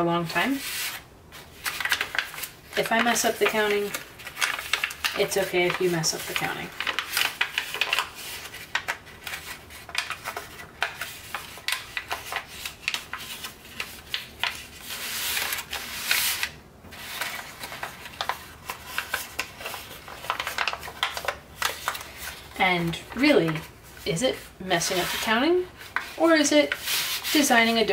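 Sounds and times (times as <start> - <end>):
paper crinkling and crackling: 0.7 - 27.9
paper rubbing on paper: 26.2 - 27.8.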